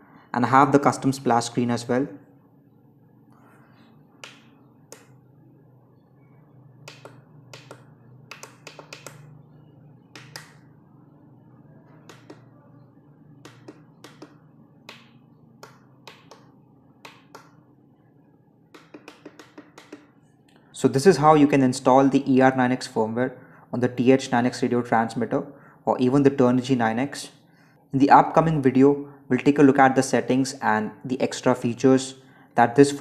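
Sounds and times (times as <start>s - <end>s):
plastic buttons clicking: 6.8s - 9.3s, 10.1s - 10.6s, 13.4s - 17.6s.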